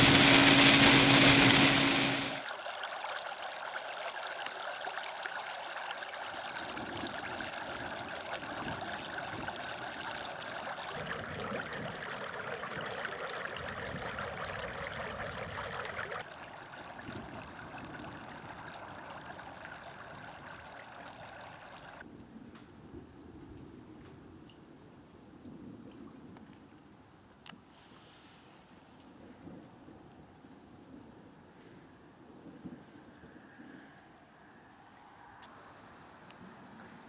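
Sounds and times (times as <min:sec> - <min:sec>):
stormwater running: 0:00.0 - 0:22.0.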